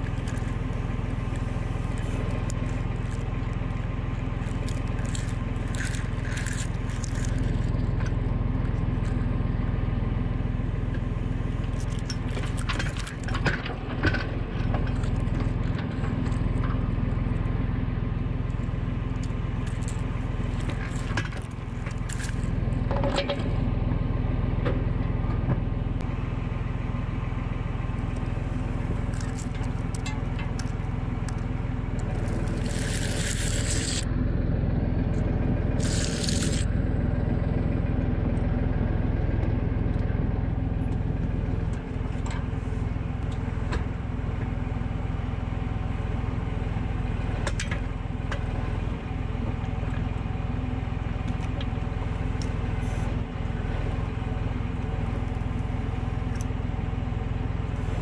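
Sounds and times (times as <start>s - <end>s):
tractor diesel engine running: 0.0s - 58.0s
loud hissing: 35.8s - 36.6s.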